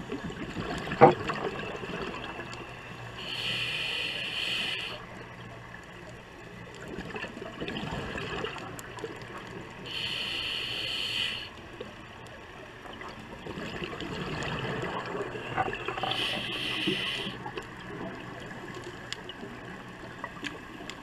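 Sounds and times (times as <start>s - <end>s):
regulator inhalation hiss: 3.2s - 5.1s, 9.9s - 11.6s, 16.0s - 17.4s.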